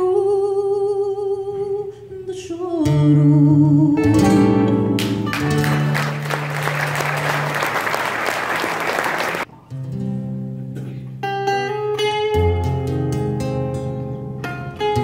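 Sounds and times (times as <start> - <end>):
plucked guitars instrumental: 2.8 - 7.5, 9.5 - 15.0
audience applauding: 5.0 - 9.5.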